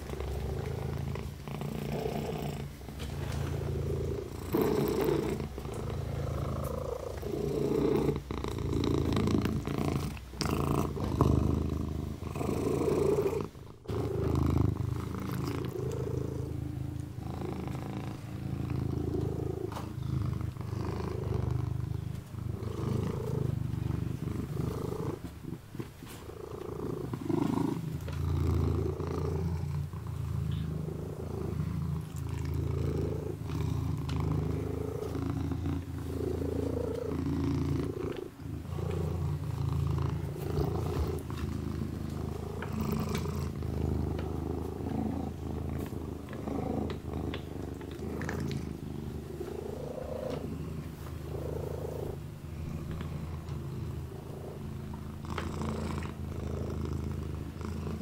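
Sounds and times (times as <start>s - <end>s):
kitten purring: 0.0s - 58.0s
faint licking clicks: 14.8s - 16.2s, 40.6s - 48.8s, 52.7s - 53.7s.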